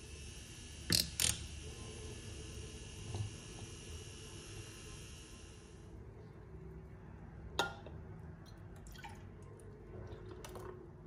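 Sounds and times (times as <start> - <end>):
milk pouring and dripping: 8.4 - 11.0.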